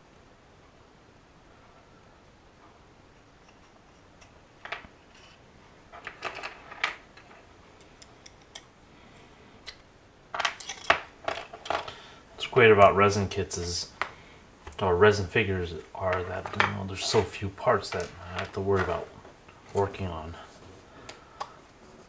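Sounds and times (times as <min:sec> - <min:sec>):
resin parts clicking and tapping: 0:03.4 - 0:08.8, 0:09.6 - 0:12.1, 0:16.0 - 0:20.2, 0:21.0 - 0:21.8.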